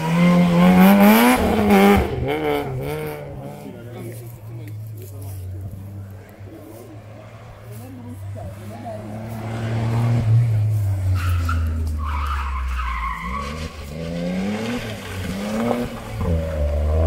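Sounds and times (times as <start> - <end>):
car engine revving through gears: 0.0 - 4.0, 8.3 - 17.0.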